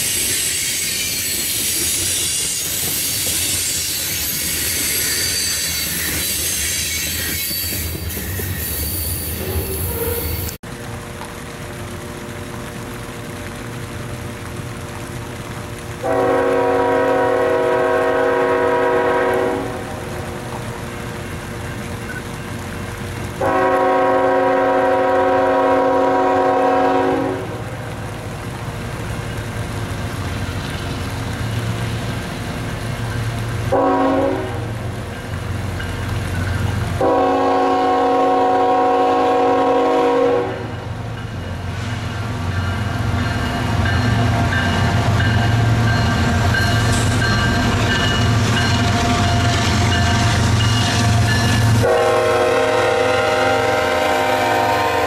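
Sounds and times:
locomotive air horn blasts: 0:16.0 - 0:19.9, 0:23.4 - 0:27.6, 0:33.7 - 0:34.8, 0:37.0 - 0:40.8, 0:51.4 - 0:55.0.

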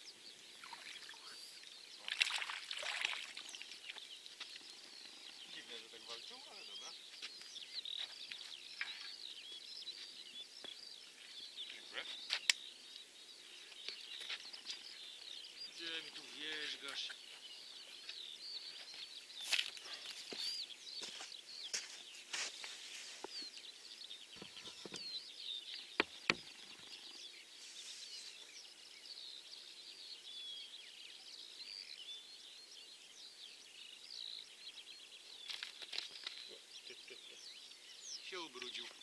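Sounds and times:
songbirds chirping: 0:00.0 - 0:39.0.

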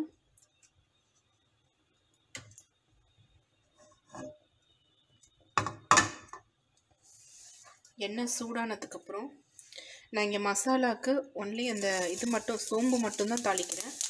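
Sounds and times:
kitchen knocks and clunks: 0:05.6 - 0:06.4
faint high hiss: 0:11.6 - 0:14.0.

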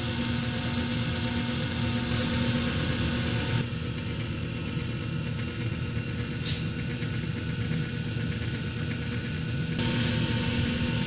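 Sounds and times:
electric mixer motor humming: 0:00.0 - 0:03.6, 0:09.8 - 0:11.0
short hiss: 0:06.4 - 0:06.7.

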